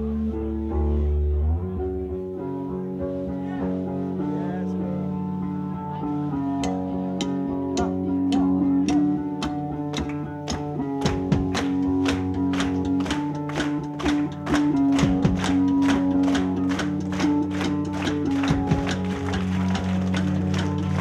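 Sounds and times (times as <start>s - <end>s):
drum hits: 10.0s - 17.6s.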